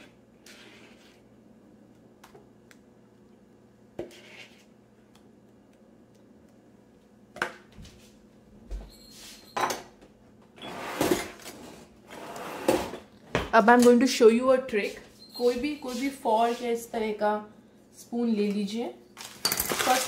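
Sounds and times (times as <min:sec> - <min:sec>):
spoon scraping plastic bowl: 0:00.0 - 0:01.3, 0:04.0 - 0:04.8
kitchenware clattering: 0:19.2 - 0:20.0.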